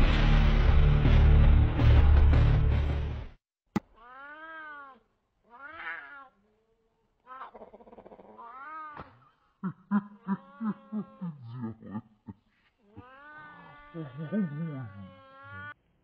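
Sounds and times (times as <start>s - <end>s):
cat meowing: 4.0s - 6.4s, 7.2s - 9.1s.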